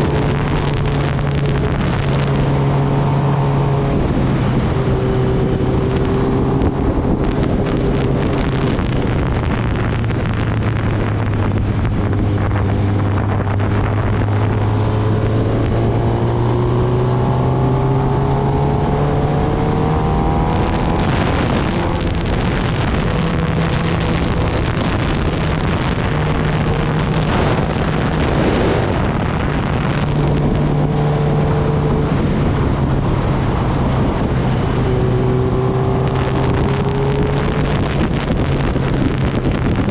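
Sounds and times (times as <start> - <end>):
motorcycle engine running: 0.0 - 39.9
wind buffeting microphone: 0.0 - 39.9.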